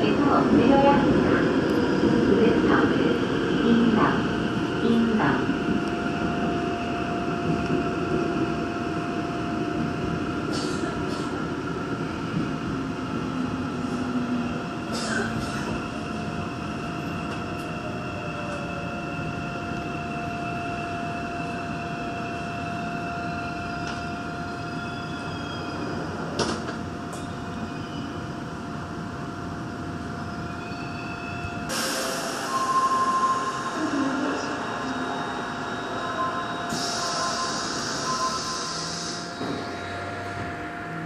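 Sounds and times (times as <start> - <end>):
train rumble: 0.0 - 30.4, 31.0 - 41.0.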